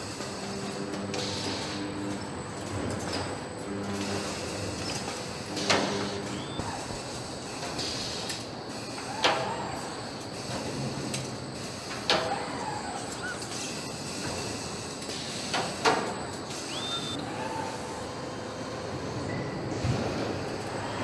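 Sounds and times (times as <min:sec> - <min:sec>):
factory background hum: 0:00.0 - 0:21.0.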